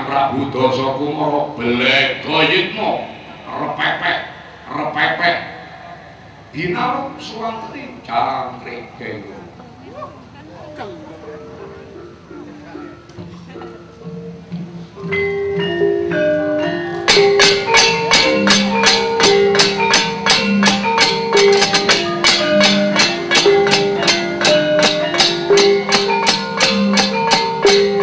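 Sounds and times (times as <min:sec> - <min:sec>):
gamelan melody on metallophones: 0:10.4 - 0:28.0
sharp percussive knocks: 0:17.0 - 0:28.0.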